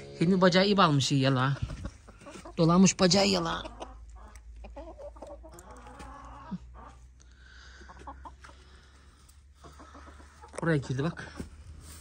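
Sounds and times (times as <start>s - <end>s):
hens clucking softly: 1.4s - 12.0s.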